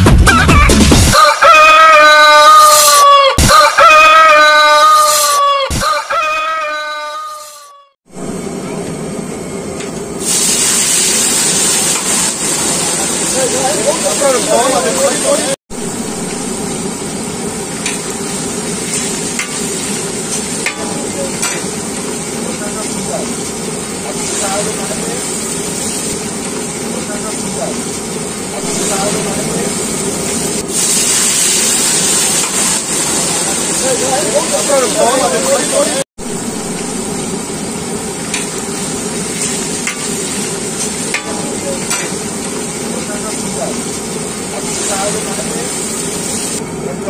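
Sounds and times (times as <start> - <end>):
chicken deep-frying in oil: 10.2 - 46.6.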